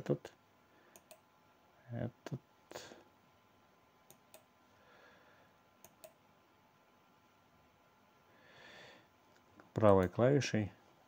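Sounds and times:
computer mouse clicks: 0.9 - 1.2, 4.1 - 4.5, 5.8 - 6.2.

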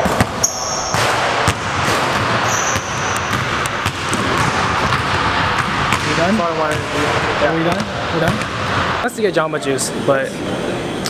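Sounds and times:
sneaker squeaks: 0.1 - 1.2, 2.1 - 4.6
basketball bouncing on wooden floor: 0.1 - 7.0.

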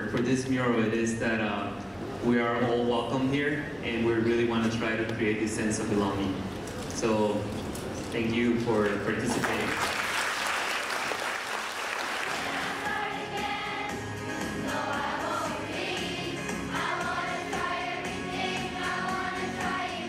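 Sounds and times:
applause: 9.2 - 12.8
children singing together: 12.2 - 20.0.

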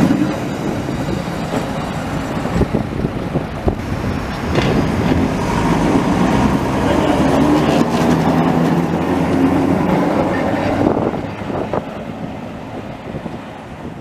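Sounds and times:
tram hum: 0.0 - 14.0
tram wheels rumbling on rails: 0.0 - 14.0.

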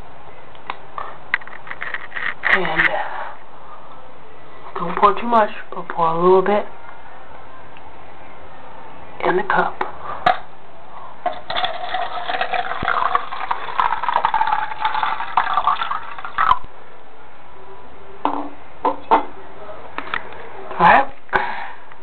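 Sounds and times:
liquid pouring into a cup: 11.3 - 16.6.

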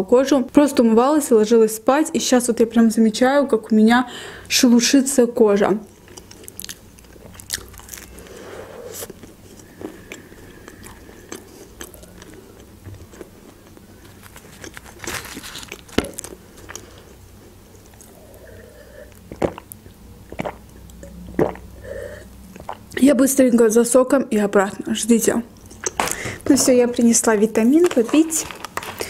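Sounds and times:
biting and chewing flatbread: 6.0 - 8.3, 9.0 - 17.2
crisp crust crunches: 13.0 - 17.0, 27.5 - 29.0.

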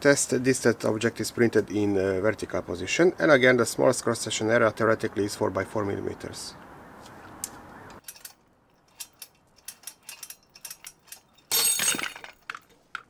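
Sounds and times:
metal hardware clattering rattle: 8.0 - 12.7.

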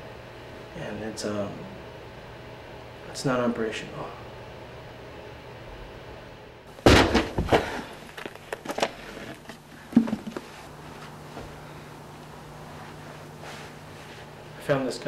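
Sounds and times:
books knocking and thudding: 6.8 - 10.8.

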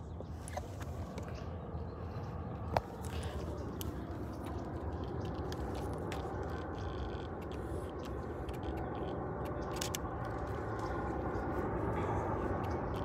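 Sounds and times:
jet aircraft rumble: 0.0 - 13.0.

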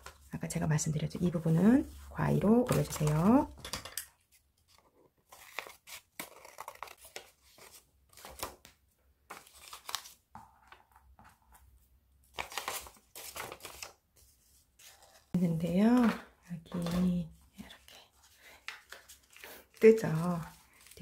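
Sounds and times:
paper rustling and crinkling: 4.3 - 11.4, 12.3 - 21.0.

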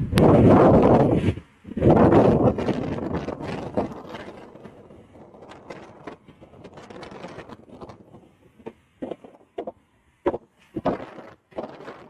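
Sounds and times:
wind on microphone: 0.0 - 12.0.

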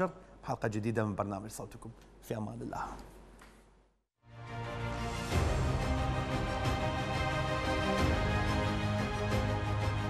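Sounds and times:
theme music with held chords: 4.3 - 10.0.

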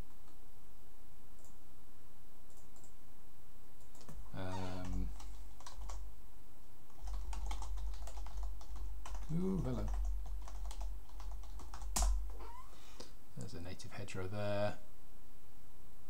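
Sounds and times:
typing on computer keyboard: 3.9 - 6.0, 6.9 - 12.3
person humming: 9.2 - 10.0.

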